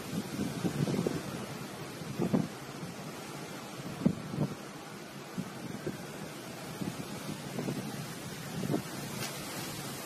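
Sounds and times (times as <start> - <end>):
storm wind blowing across microphone: 0.0 - 10.0.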